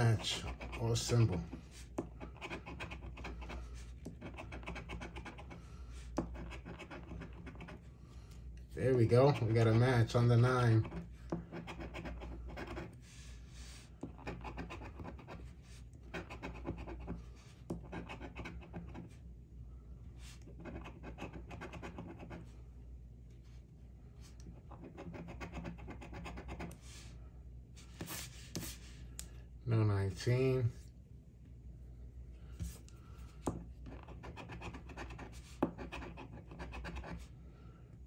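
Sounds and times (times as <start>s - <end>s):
coin scratching lottery ticket: 0.0s - 1.4s, 2.2s - 3.5s, 4.1s - 5.6s, 6.2s - 7.8s, 11.6s - 12.9s, 14.1s - 15.4s, 16.1s - 17.0s, 20.6s - 22.4s, 24.8s - 26.7s.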